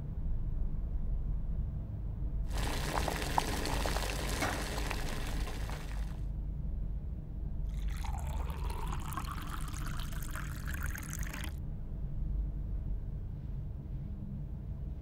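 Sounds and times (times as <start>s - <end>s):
water pouring into mug: 2.5s - 6.2s, 7.7s - 11.6s.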